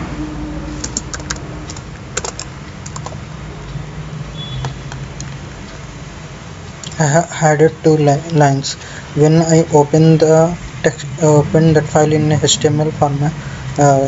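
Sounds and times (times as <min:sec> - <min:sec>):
steady low hum: 0:00.0 - 0:14.0
keyboard keys clicking: 0:00.8 - 0:03.2.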